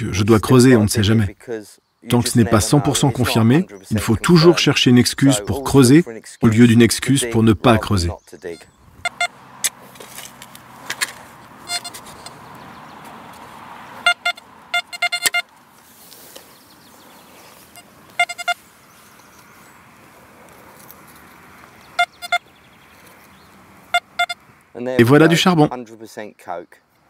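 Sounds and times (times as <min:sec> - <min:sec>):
metal detector beeps: 0:08.5 - 0:09.4, 0:11.6 - 0:12.4, 0:14.0 - 0:15.5, 0:17.7 - 0:18.6, 0:22.0 - 0:22.5, 0:23.9 - 0:24.4.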